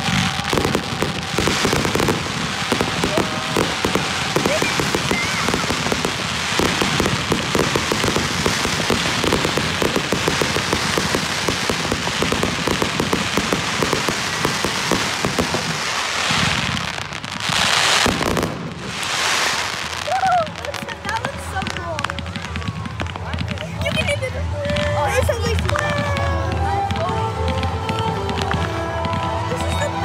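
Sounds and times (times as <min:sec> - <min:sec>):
fireworks hissing: 0:00.0 - 0:22.4
fireworks crackling: 0:00.0 - 0:30.0.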